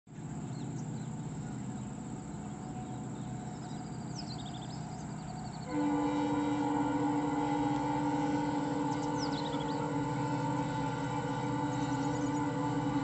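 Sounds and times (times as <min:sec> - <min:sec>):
steady low rumble: 0:00.1 - 0:13.0
birds chirping: 0:00.2 - 0:13.0
loud horn-like tone: 0:05.6 - 0:13.0.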